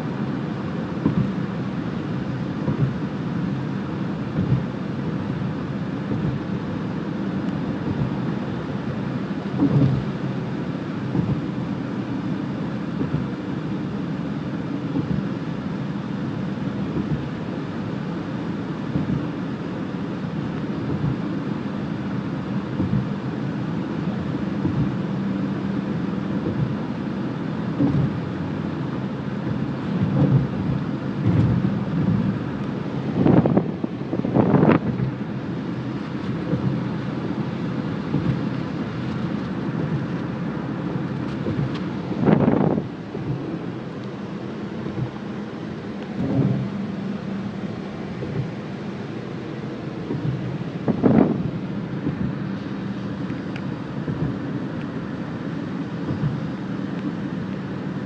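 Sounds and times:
car interior road rumble: 0:00.0 - 0:58.0
brief thumps: 0:46.1 - 0:46.8.

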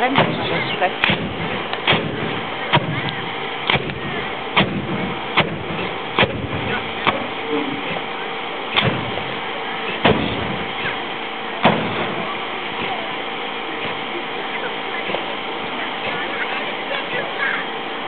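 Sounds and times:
fire cannon bangs: 0:00.0 - 0:14.1
steady noise with held tones: 0:00.0 - 0:18.0.

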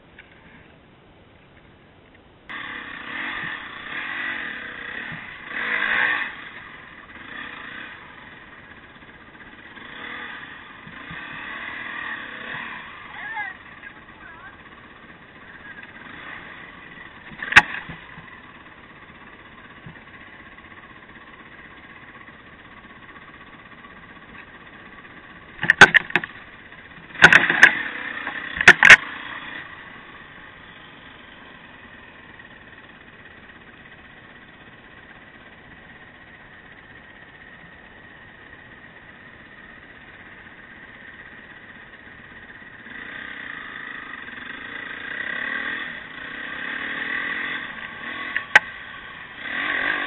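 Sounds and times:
sharp knocks and rattles: 0:10.8 - 0:11.6, 0:16.2 - 0:18.6, 0:19.6 - 0:21.0, 0:23.9 - 0:29.2.

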